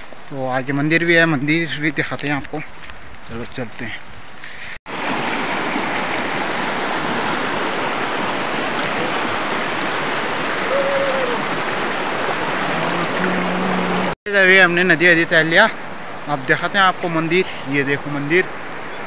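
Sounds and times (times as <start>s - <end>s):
river rushing over rocks: 4.9s - 14.2s.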